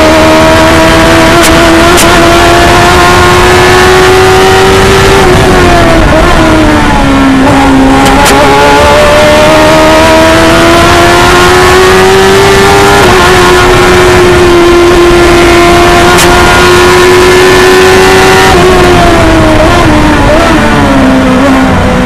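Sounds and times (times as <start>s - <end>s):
race car engine at high revs: 0.0s - 22.0s.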